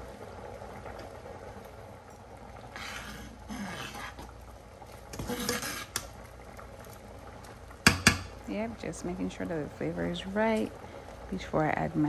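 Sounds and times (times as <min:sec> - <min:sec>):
metal spoon stirring in pot: 0:02.8 - 0:04.3, 0:05.1 - 0:06.1
spoon tapping pot: 0:07.8 - 0:08.3.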